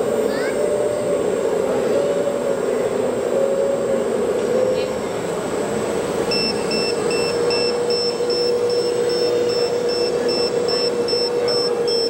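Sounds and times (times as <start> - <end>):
steady motor whine: 0.0 - 12.0
rapid high-pitched electronic beeping: 6.3 - 12.0.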